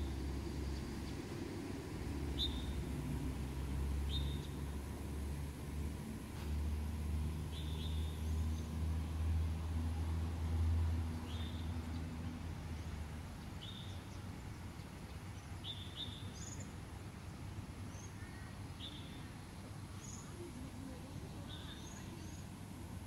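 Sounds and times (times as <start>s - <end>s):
low outdoor rumble: 0.0s - 23.0s
birds chirping: 21.0s - 22.6s.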